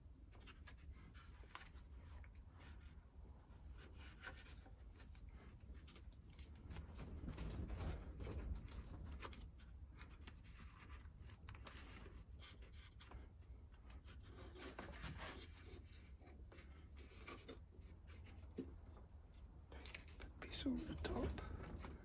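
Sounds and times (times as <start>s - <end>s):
paper and tape rustling: 0.2s - 22.0s
small scratches and taps: 0.2s - 22.0s
low steady rumble: 17.8s - 22.0s.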